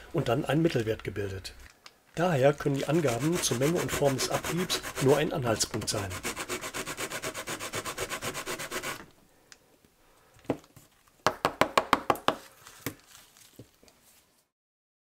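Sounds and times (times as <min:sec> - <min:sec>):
eraser rubbing on metal rail: 0:02.8 - 0:09.0.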